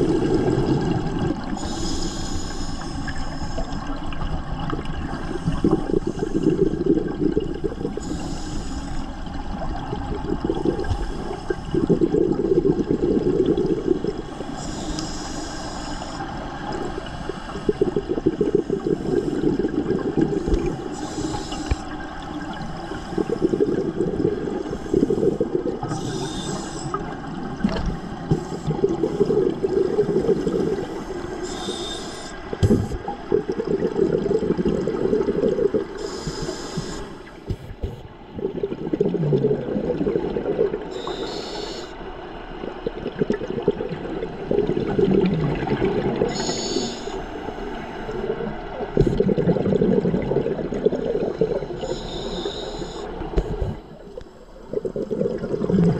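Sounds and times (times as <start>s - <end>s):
exhaled bubbles rushing: 0.0s - 1.8s, 3.7s - 8.1s, 9.2s - 14.6s, 16.3s - 21.0s, 21.6s - 31.4s, 32.5s - 36.5s, 37.2s - 41.2s, 42.6s - 46.6s, 48.0s - 52.0s, 53.2s - 55.9s
regulator inhale hiss: 1.5s - 3.9s, 7.6s - 9.2s, 10.7s - 11.8s, 14.3s - 19.8s, 20.4s - 22.0s, 22.8s - 27.2s, 28.0s - 33.1s, 35.9s - 37.4s, 40.9s - 42.0s, 46.3s - 48.3s, 51.4s - 54.7s.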